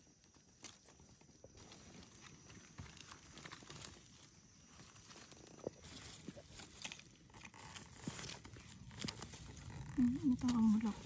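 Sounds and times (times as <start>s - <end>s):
rustling of dry leaf litter: 0.0s - 11.0s
small clicks and scrapes: 5.5s - 11.0s.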